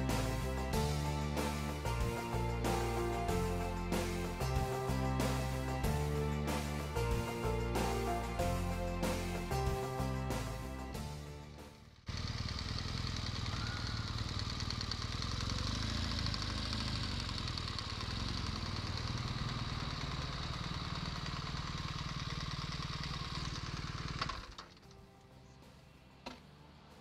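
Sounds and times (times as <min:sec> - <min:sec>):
motorcycle engine at low revs: 0:11.8 - 0:24.8.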